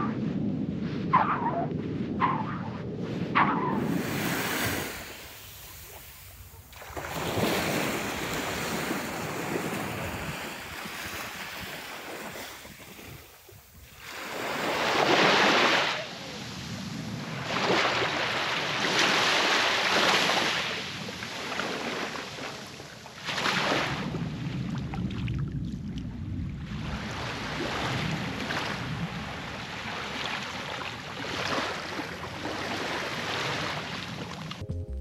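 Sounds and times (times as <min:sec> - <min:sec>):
wind buffeting microphone: 0:00.0 - 0:18.4, 0:23.8 - 0:31.1
ocean surf washing in: 0:03.2 - 0:20.7.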